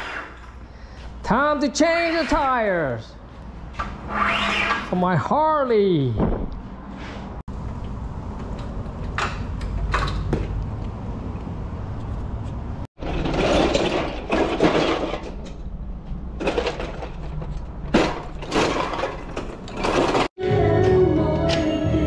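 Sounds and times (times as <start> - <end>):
tool cart wheels rumbling: 13.0 - 20.3
tools rattling in a tray: 16.4 - 20.3.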